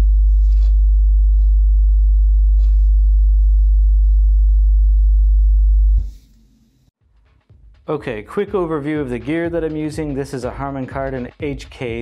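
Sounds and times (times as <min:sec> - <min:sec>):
low bass test tone: 0:00.0 - 0:06.0.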